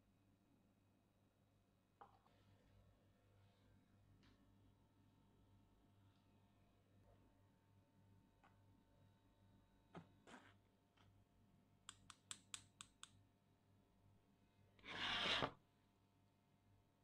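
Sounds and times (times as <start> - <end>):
rustling scrape: 14.8 - 15.6.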